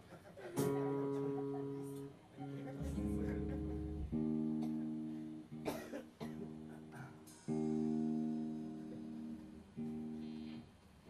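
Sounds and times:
electric guitar chords ringing: 0.6s - 10.7s
scratchy muted guitar strum: 2.8s - 10.6s.

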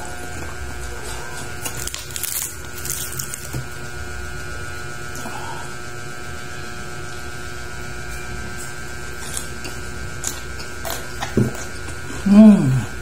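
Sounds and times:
steady low hum: 0.0s - 13.0s
crispy skin crackling: 1.4s - 3.8s.

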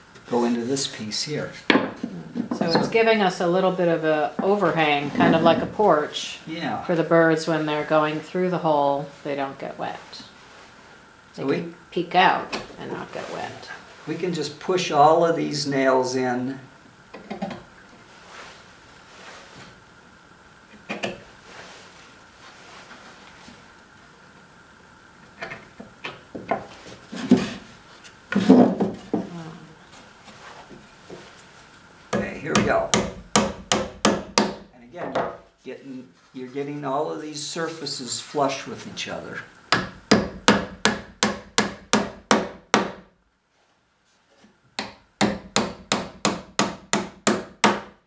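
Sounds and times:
wooden pieces knocking and scraping: 28.3s - 29.3s.

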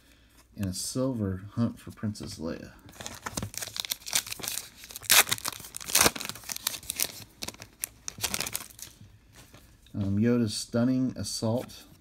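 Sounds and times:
card pack wrapper tearing: 2.9s - 9.0s.

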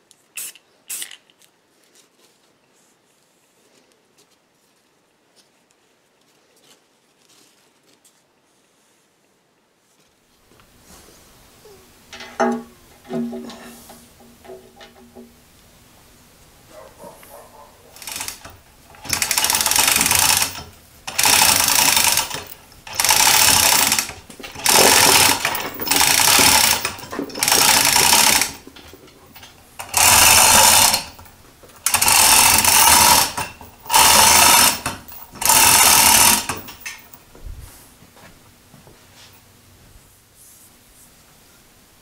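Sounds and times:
chain rattling through hoist: 17.9s - 37.2s.

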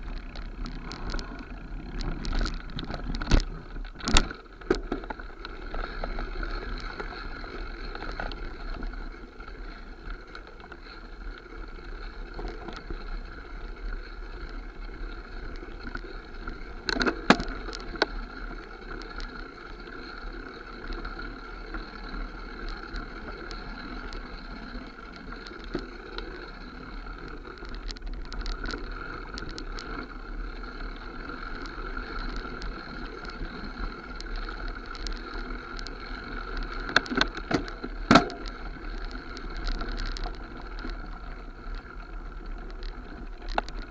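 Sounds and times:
bike tyres and wind rushing: 0.0s - 43.9s
bike knocks and rattles: 36.9s - 38.5s.

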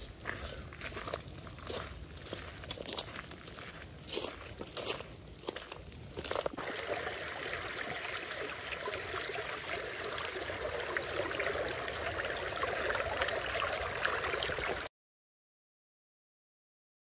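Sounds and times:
running water: 6.6s - 14.9s.

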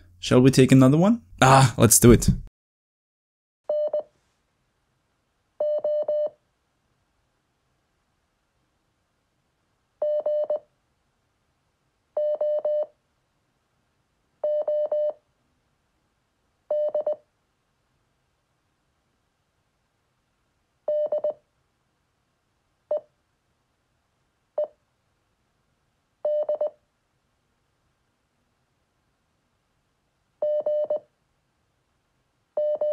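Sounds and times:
morse code beeps: 32.6s - 32.9s.

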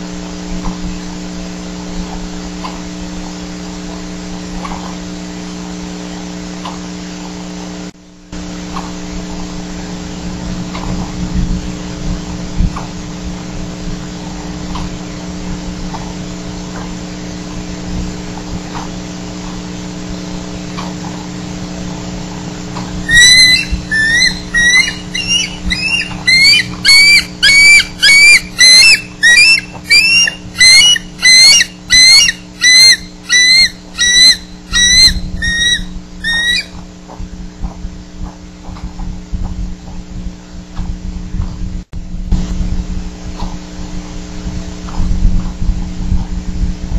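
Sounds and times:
electrical hum: 0.0s - 46.9s
eagle piping calls: 23.0s - 36.8s.

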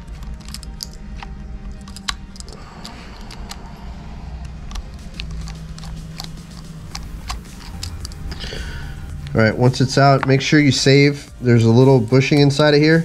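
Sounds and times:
steady low hum: 0.0s - 13.0s
screwdriver turning metal screw: 4.7s - 8.4s.

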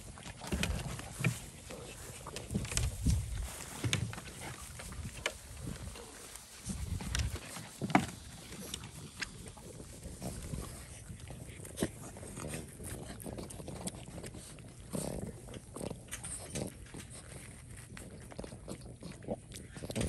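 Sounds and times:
dogs chewing watermelon: 0.0s - 20.0s.

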